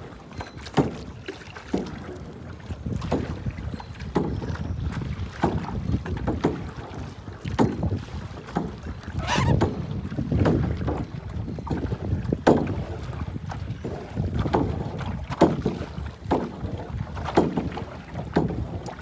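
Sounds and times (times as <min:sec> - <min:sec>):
paddle splashing in water: 0:00.0 - 0:19.0
wind on microphone: 0:01.8 - 0:19.0.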